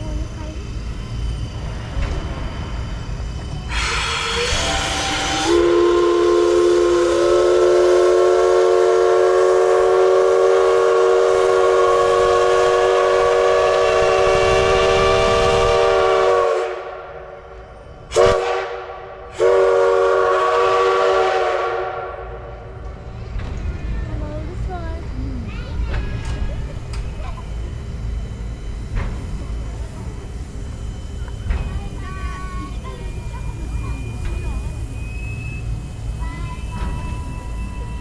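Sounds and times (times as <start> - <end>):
rush of steam: 0.0 - 38.0
steam locomotive whistle: 3.6 - 17.1, 18.1 - 22.4.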